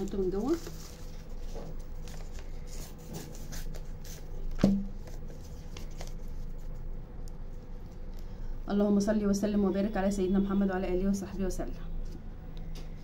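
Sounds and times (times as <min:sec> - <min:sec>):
cardboard handling sounds: 0:00.0 - 0:06.8.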